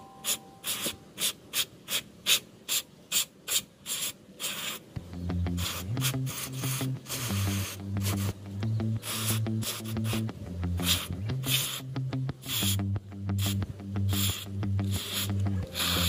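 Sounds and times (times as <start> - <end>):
aerosol can squirts: 0.6 - 4.8, 5.6 - 8.4, 9.0 - 11.8, 12.5 - 12.8, 13.4 - 16.0
background music: 5.0 - 16.0.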